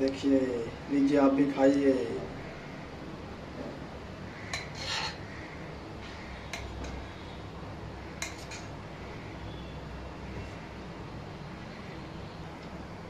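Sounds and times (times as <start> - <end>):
metal spoon clinking on pot: 4.5 - 5.2, 8.2 - 8.7.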